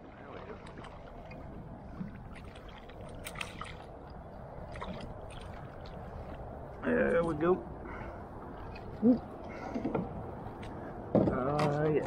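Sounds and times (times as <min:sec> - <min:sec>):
water noise: 0:00.0 - 0:12.0.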